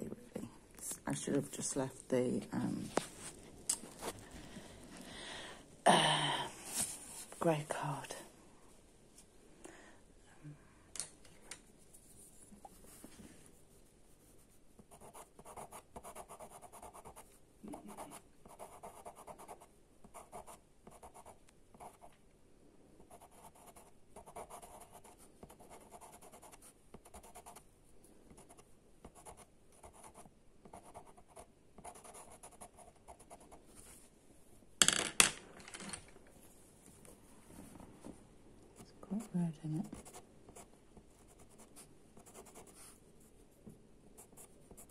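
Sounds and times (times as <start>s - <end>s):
pencil scratching on sanded card: 14.2s - 19.6s.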